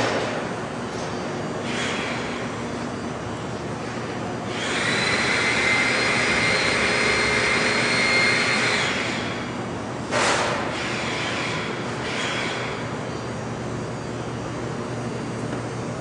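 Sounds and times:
high mechanical whine: 0.0 - 16.0
paste mixer motor running: 4.5 - 9.1.

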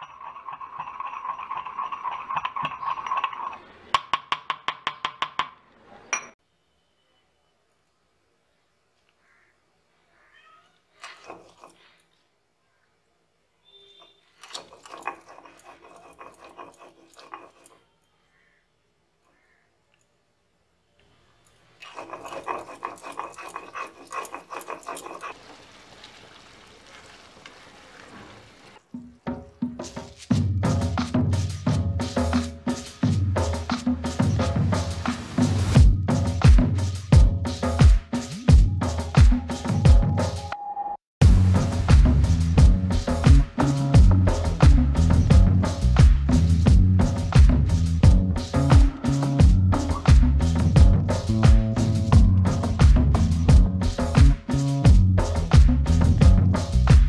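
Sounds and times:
stone roller grinding on stone: 0.0 - 3.7, 11.0 - 11.8, 14.4 - 17.9, 21.8 - 25.4
pestle striking mortar: 0.0 - 5.6.

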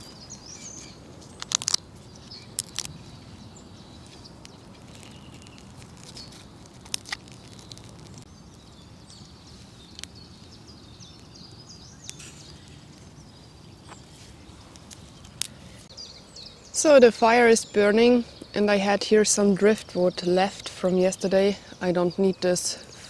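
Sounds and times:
twigs cracking: 0.0 - 15.9
small birds chirping: 0.0 - 23.0.

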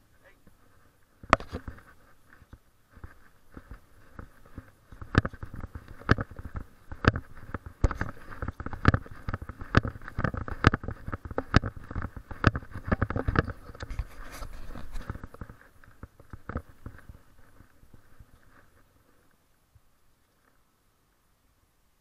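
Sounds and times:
steady rustle: 0.0 - 21.4
footsteps on concrete: 0.4 - 19.3.

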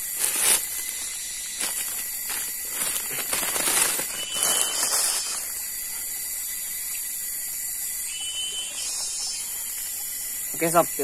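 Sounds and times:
high outdoor hiss: 0.0 - 11.0
rustling handling noise: 1.6 - 5.4
faint high whistles: 4.0 - 6.1, 8.0 - 10.1.

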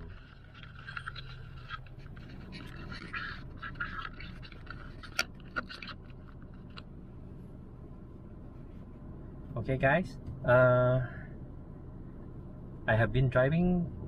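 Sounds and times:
low car cabin hum: 0.0 - 14.0
camera handling noise: 0.1 - 6.9.

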